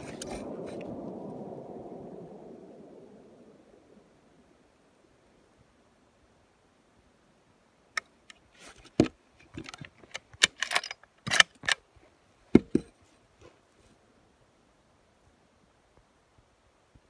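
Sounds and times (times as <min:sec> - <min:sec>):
gear handling clicks and scrapes: 0:08.3 - 0:11.8.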